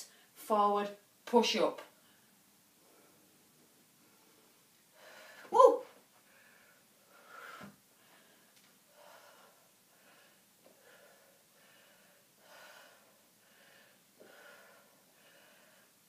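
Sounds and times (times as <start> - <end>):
woman breathing softly: 4.0 - 5.5, 6.2 - 16.0.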